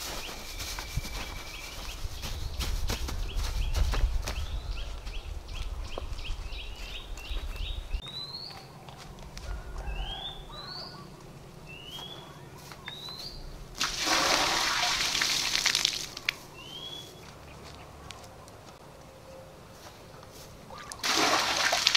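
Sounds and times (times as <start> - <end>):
water pouring and splashing: 13.8 - 16.4, 20.9 - 21.9.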